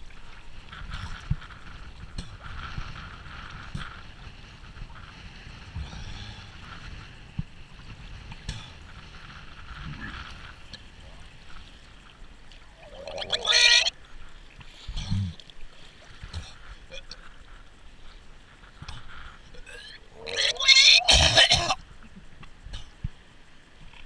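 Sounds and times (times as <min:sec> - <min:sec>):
water lapping around kayak: 0:00.0 - 0:20.4
person retching: 0:12.8 - 0:13.9, 0:19.6 - 0:21.8.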